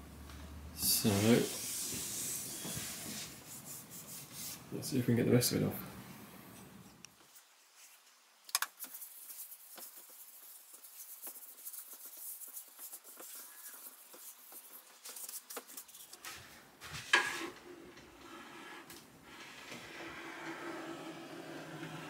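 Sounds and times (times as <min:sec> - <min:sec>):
rag rubbing on wood: 0:08.8 - 0:16.1.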